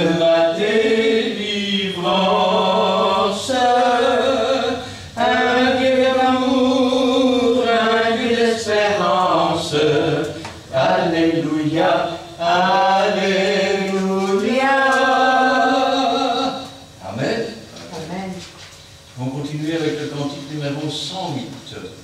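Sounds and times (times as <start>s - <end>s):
hymn sung slowly: 0.0s - 17.0s.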